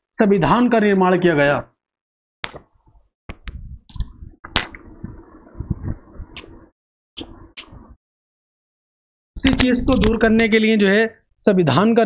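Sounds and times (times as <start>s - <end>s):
sharp clicks and taps: 2.4s - 2.7s, 3.3s - 4.8s.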